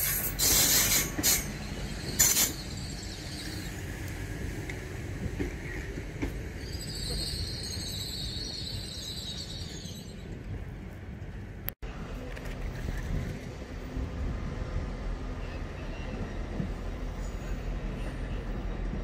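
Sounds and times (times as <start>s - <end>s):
train wheel squeal: 0.0s - 4.0s, 5.4s - 10.4s, 15.4s - 18.8s
train rumbling slowly: 0.0s - 19.0s.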